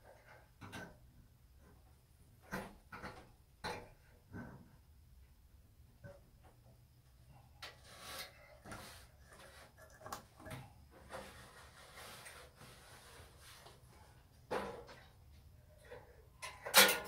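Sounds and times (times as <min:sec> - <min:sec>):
knocks and scrapes on sheet metal: 0:00.0 - 0:01.8, 0:02.4 - 0:04.8, 0:07.6 - 0:15.2, 0:15.8 - 0:17.0.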